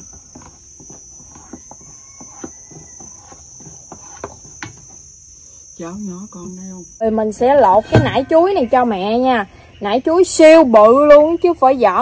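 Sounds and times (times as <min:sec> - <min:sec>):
spatula scraping steel bowl: 0:00.0 - 0:05.0
insects chirring: 0:00.0 - 0:12.0.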